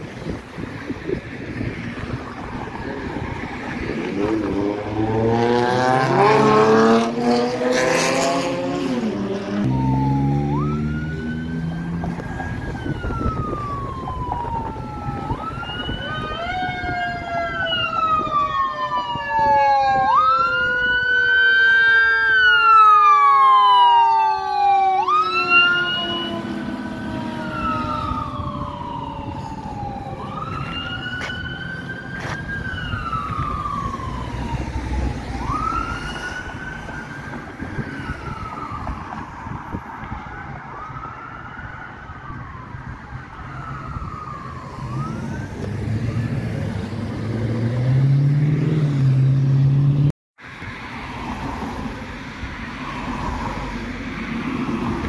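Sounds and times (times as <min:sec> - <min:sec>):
vehicle engine accelerating: 0:01.5 - 0:15.6, 0:44.2 - 0:50.1
fire engine siren wailing: 0:01.5 - 0:48.8.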